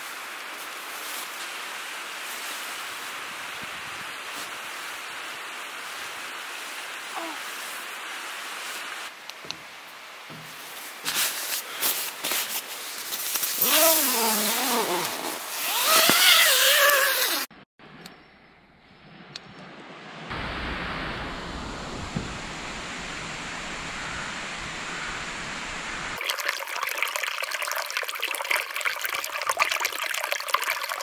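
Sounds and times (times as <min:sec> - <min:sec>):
steady hiss: 0:00.0 - 0:17.5, 0:20.3 - 0:26.2
sleeping bags rustling: 0:10.3 - 0:17.5.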